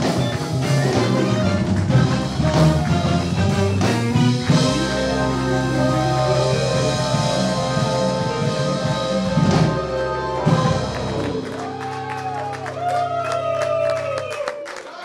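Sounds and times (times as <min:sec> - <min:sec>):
instrumental music: 0:00.0 - 0:14.4.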